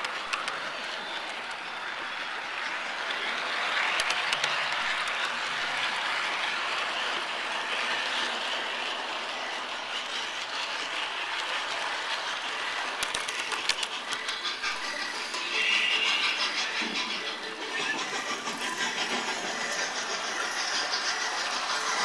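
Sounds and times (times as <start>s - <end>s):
model train rolling hiss: 0.0s - 22.0s
wheels clicking over rail joints: 0.0s - 22.0s.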